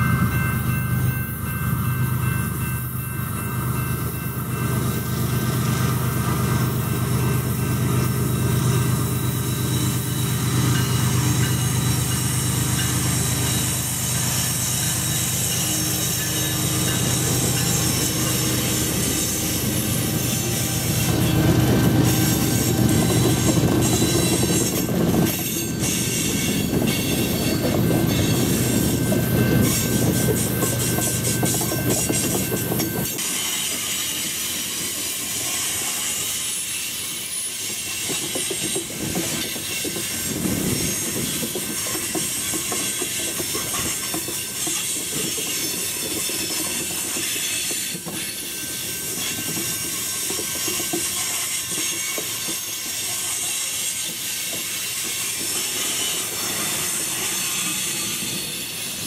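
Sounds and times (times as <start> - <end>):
diesel locomotive engine hum: 0.0 - 33.4
train wheels clattering and squealing: 0.0 - 59.0.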